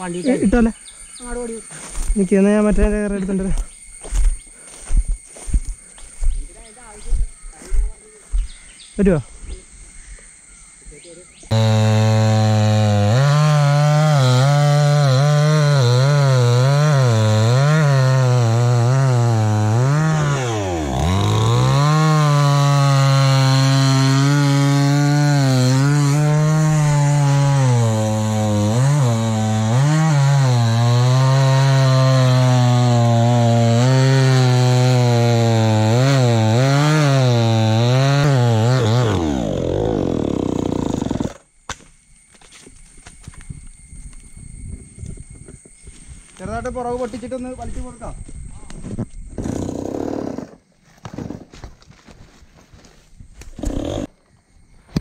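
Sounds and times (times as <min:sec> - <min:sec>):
chainsaw cutting wood: 0:11.5 - 0:41.8, 0:49.3 - 0:51.7, 0:53.4 - 0:54.2.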